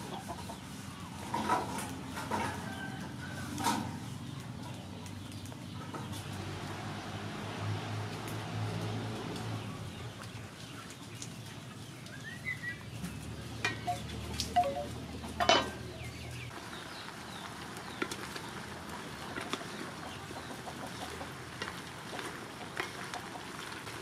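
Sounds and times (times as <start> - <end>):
bamboo wind chime knocking: 14.6 - 15.8.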